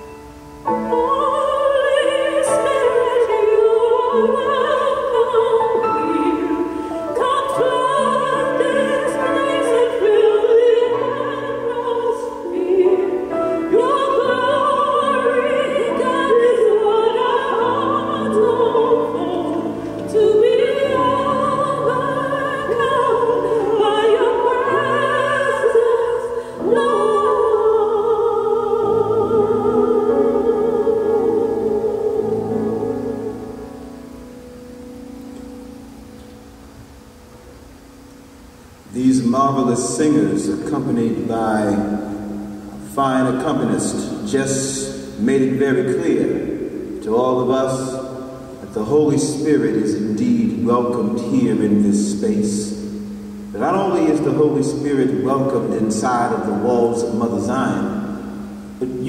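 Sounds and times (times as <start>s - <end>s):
women singing sacred song: 0.5s - 34.1s.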